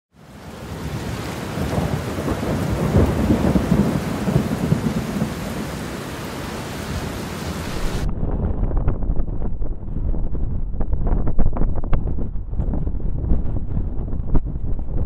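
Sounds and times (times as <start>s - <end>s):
steady rain: 0.1s - 8.1s
thunder rumbling: 0.4s - 15.0s.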